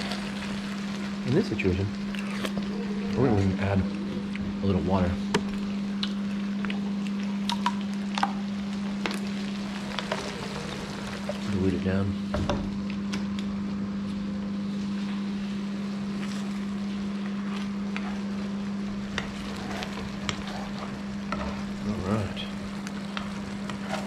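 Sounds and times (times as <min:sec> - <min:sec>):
sauce sizzling in a pan: 0:00.0 - 0:03.7, 0:07.9 - 0:11.9, 0:17.3 - 0:24.0
microwave oven humming: 0:00.0 - 0:24.0.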